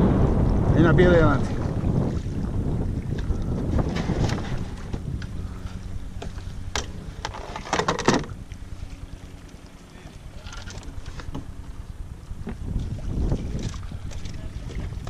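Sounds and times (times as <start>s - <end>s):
wind rumbling on microphone: 0.0s - 15.0s.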